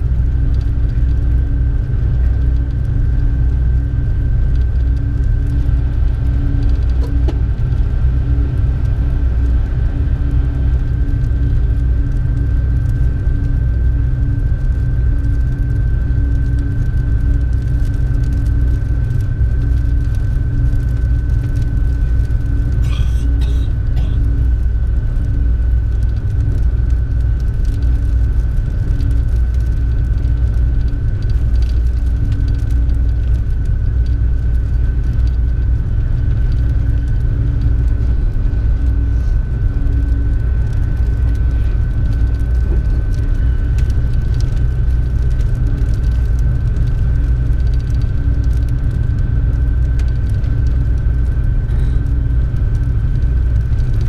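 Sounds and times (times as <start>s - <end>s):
train interior rumble: 0.0s - 13.5s, 19.7s - 32.6s, 34.4s - 46.0s.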